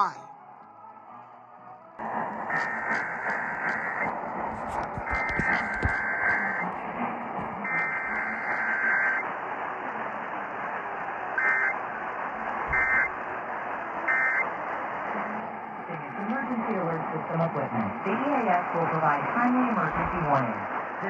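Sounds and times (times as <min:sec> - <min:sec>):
radio static: 0:02.0 - 0:21.0
screeching alert data tones: 0:05.0 - 0:06.7, 0:07.6 - 0:09.3, 0:11.3 - 0:11.8, 0:12.7 - 0:13.2, 0:14.0 - 0:14.5.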